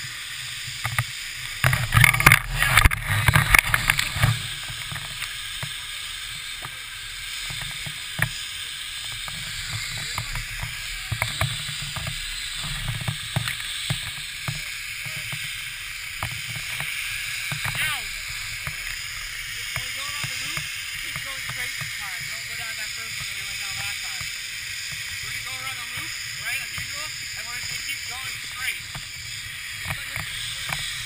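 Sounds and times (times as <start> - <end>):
sharp knocks and clicks: 9.1 - 15.5, 16.1 - 17.8.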